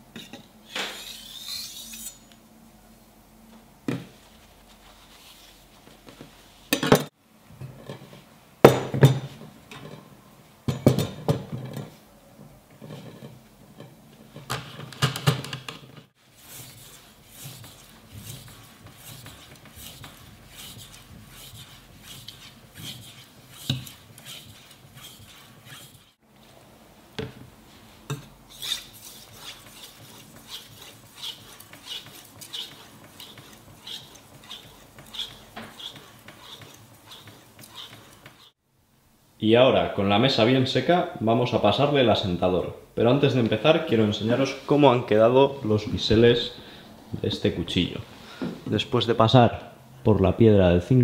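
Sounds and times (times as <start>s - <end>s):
knife scraping on whetstone: 0.2s - 2.4s, 16.3s - 26.2s, 28.1s - 38.6s.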